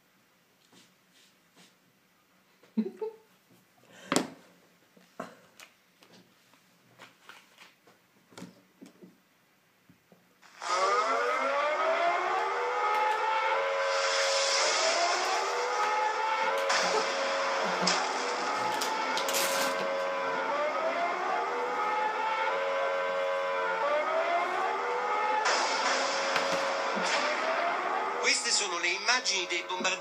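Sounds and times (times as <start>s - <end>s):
air-raid siren through a phone: 10.4s - 30.0s.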